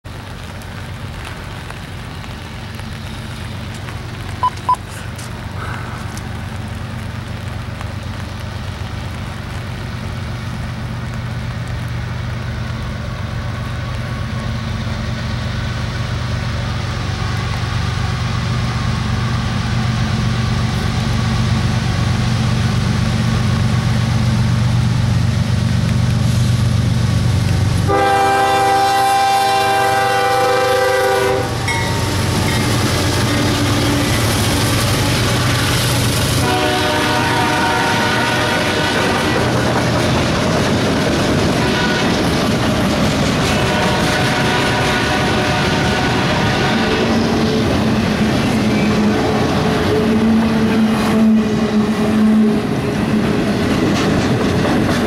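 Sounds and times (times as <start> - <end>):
diesel locomotive rumble: 0.1 - 55.0
short beeps: 4.4 - 4.8
locomotive horn: 27.9 - 34.1, 35.0 - 39.6, 41.6 - 42.3, 43.4 - 47.3, 48.8 - 52.9.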